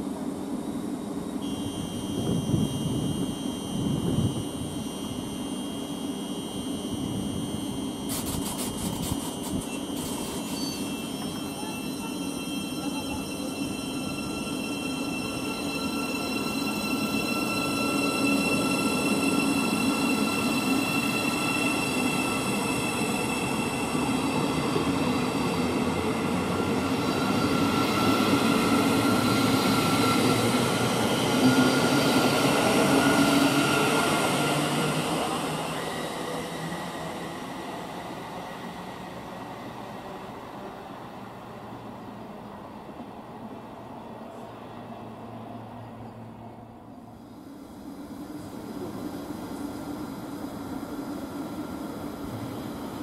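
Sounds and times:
high whining tones: 1.4 - 38.2.

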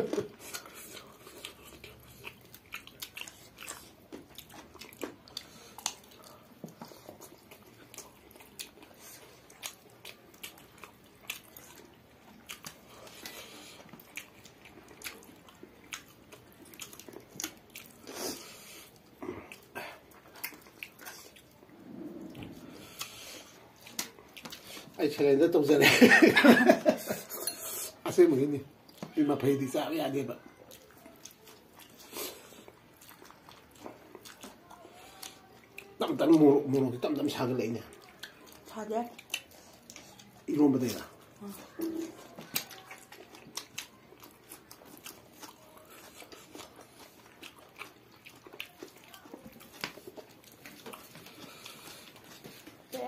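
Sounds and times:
chewing and biting food: 0.0 - 25.2, 28.7 - 53.0
mouth clicks and smacks: 23.8 - 24.8.

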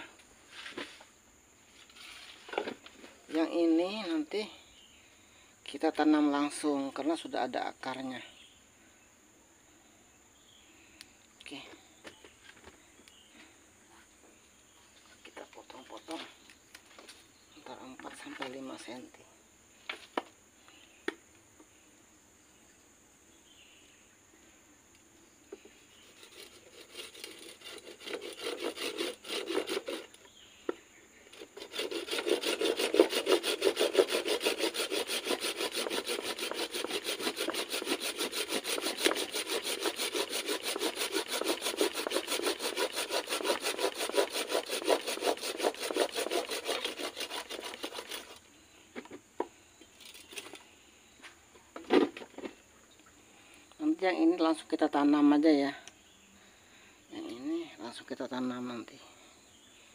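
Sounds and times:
pruning saw cutting wood: 26.0 - 30.2, 31.4 - 48.4.

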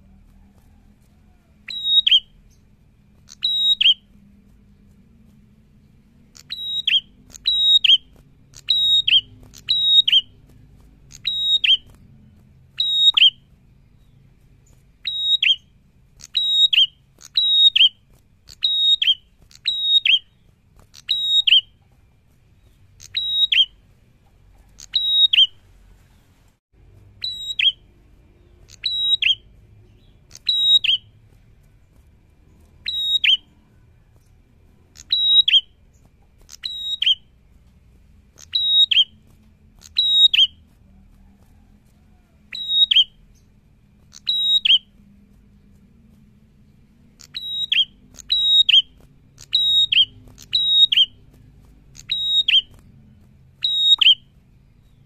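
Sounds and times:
bird whistled calls: 1.6 - 2.6, 3.2 - 4.1, 6.3 - 10.4, 11.1 - 12.0, 12.7 - 21.8, 22.6 - 23.8, 24.6 - 25.6, 27.2 - 31.1, 32.8 - 33.8, 34.9 - 37.3, 38.4 - 39.2, 39.8 - 40.6, 41.2 - 43.5, 44.1 - 44.9, 47.2 - 51.2, 51.9 - 52.8, 53.6 - 55.0.

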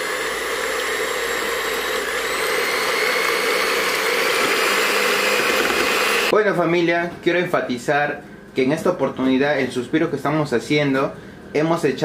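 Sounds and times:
electric hand mixer whining: 0.0 - 6.3.

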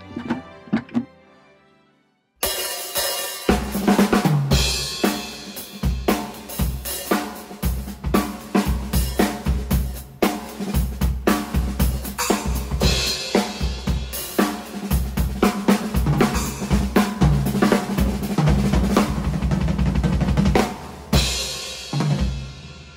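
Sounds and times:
drum kit playing fast beat: 2.4 - 22.9.

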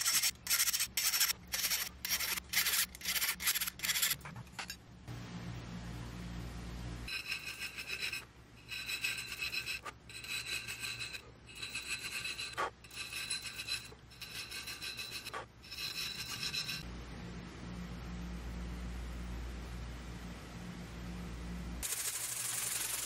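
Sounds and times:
file rasping on steel: 0.0 - 4.2, 7.1 - 16.8
high ringing tone: 7.1 - 16.8.

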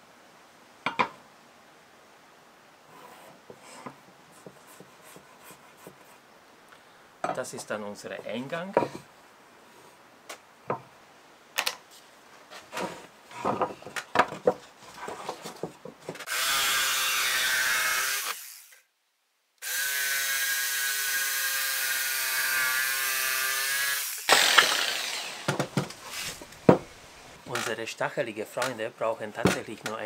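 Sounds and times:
jigsaw cutting wood: 16.2 - 18.8, 19.6 - 26.5
knocks: 26.6 - 26.9.

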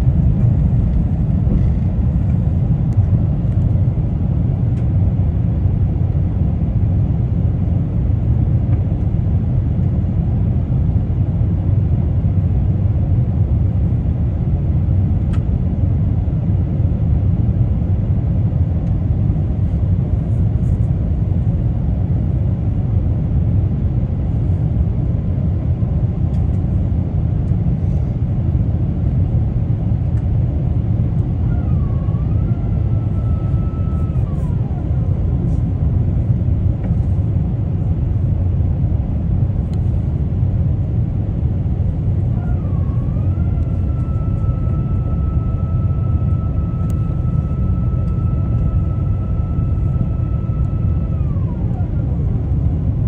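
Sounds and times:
airliner cabin rumble: 0.0 - 53.0
high motor whine: 29.2 - 53.0.

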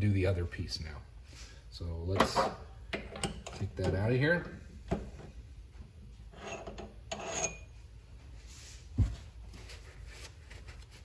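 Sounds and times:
metal-on-metal scraping: 6.3 - 7.7.

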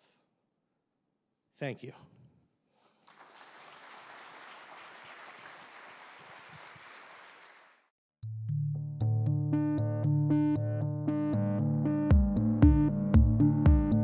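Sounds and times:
audience applauding: 3.0 - 7.9
electronic synthesizer music: 9.0 - 14.0.

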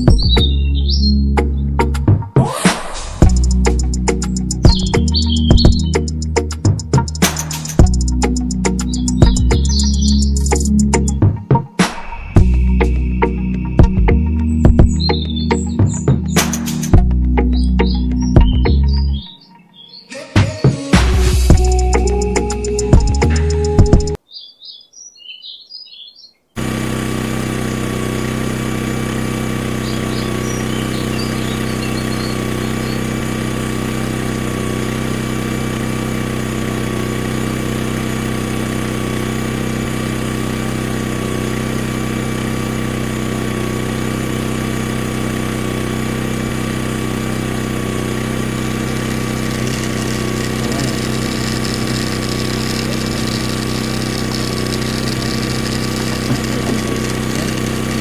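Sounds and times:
small electric motor humming: 0.0 - 1.1, 3.0 - 11.2, 12.3 - 19.0, 21.2 - 24.2, 26.6 - 58.0
birds chirping: 0.0 - 1.9, 3.3 - 11.6, 12.2 - 20.4, 21.6 - 27.0, 27.7 - 34.9, 42.8 - 58.0.

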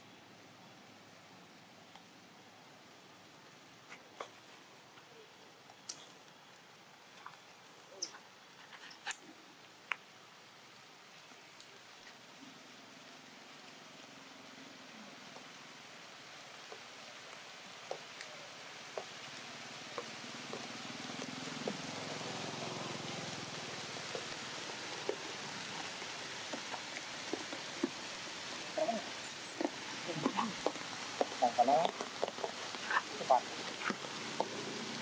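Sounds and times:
steady outdoor hiss: 0.0 - 35.0
faint clicks: 5.0 - 6.4.

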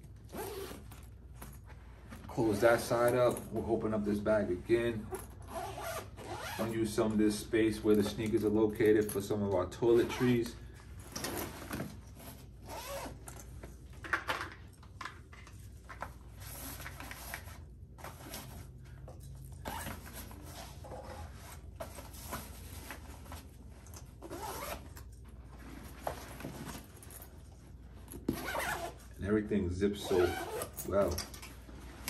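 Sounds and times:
bag fabric rustling: 0.1 - 2.6, 10.0 - 13.5, 19.5 - 29.2, 30.0 - 31.1
backpack zippers pulled: 0.3 - 1.0, 5.4 - 6.7, 12.6 - 13.3, 24.2 - 25.1, 28.3 - 29.2, 30.0 - 31.2.

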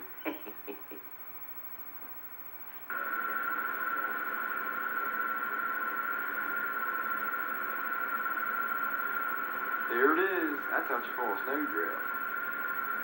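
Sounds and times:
high-pitched whine: 2.9 - 13.0.

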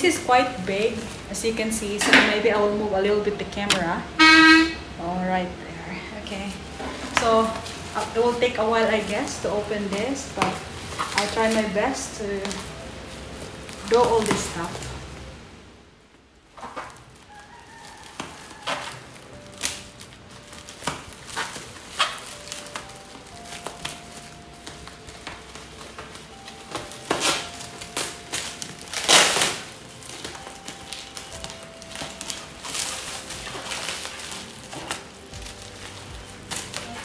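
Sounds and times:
plastic packaging crinkling: 0.0 - 3.8, 6.0 - 15.4, 16.4 - 37.0
scissors snipping plastic: 18.6 - 37.0.

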